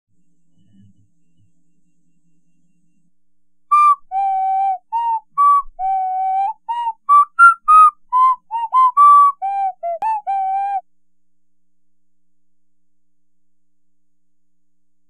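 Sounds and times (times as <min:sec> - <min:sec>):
person whistling a tune: 0:03.7 - 0:10.8.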